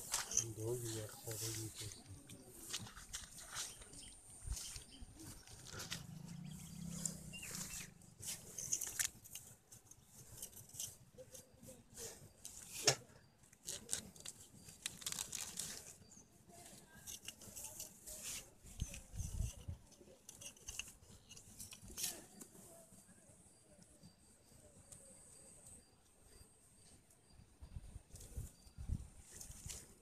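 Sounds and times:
grass rustling and crinkling: 0:00.0 - 0:12.8, 0:13.6 - 0:22.5, 0:28.3 - 0:30.0.

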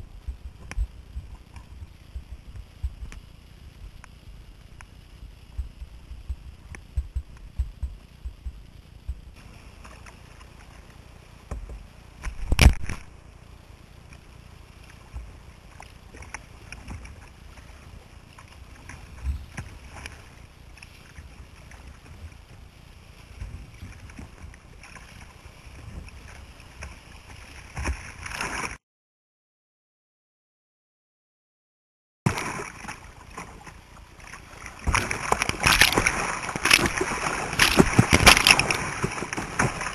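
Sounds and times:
water rushing and splashing: 0:00.0 - 0:28.8, 0:32.3 - 0:39.9
knocks and thumps on kayak: 0:34.8 - 0:39.9.

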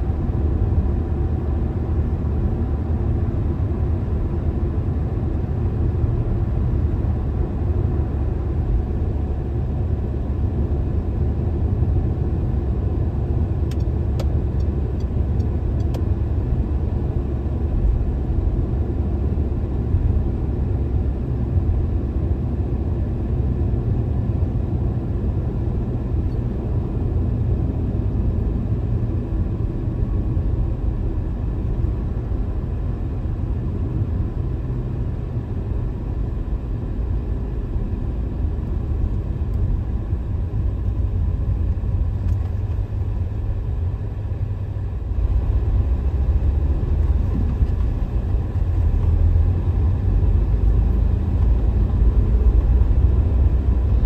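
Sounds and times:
car tyres and engine rumble: 0:00.0 - 0:54.0.

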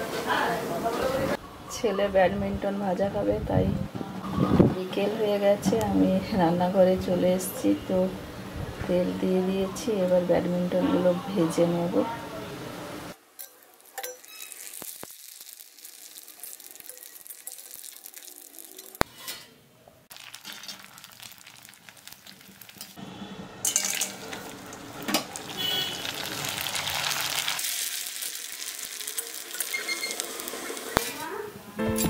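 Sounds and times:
dumplings sizzling in hot oil: 0:13.2 - 0:19.1, 0:20.1 - 0:23.0, 0:23.6 - 0:31.4.

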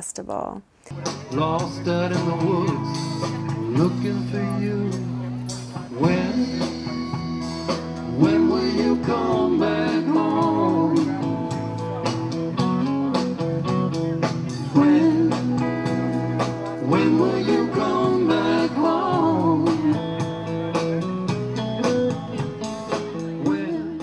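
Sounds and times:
person singing: 0:00.9 - 0:11.8, 0:14.5 - 0:20.8, 0:23.0 - 0:24.0
plucked guitar: 0:00.9 - 0:24.0.

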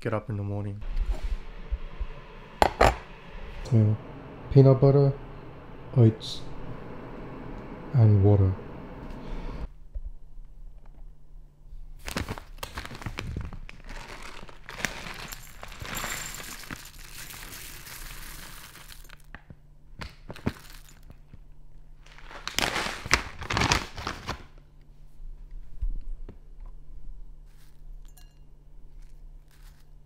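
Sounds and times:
food packaging crinkling: 0:12.0 - 0:19.4, 0:20.0 - 0:21.4, 0:22.0 - 0:24.7, 0:28.9 - 0:30.0.

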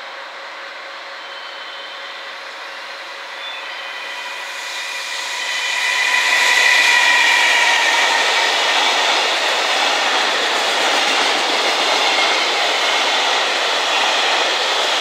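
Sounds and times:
electric locomotive whine: 0:00.0 - 0:15.0
train wheels rolling: 0:01.1 - 0:15.0.

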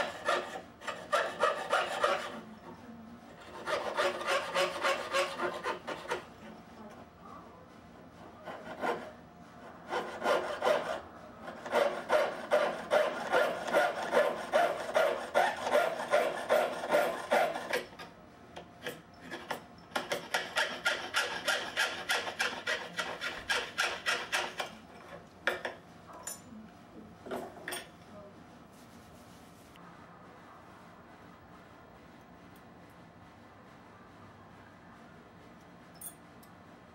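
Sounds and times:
saw rasping through metal: 0:00.0 - 0:02.5, 0:03.4 - 0:06.3, 0:08.4 - 0:18.1, 0:18.8 - 0:25.2.

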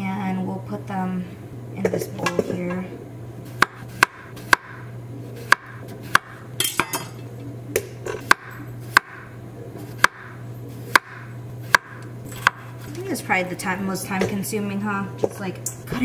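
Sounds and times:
knife slicing potatoes: 0:05.4 - 0:06.4.

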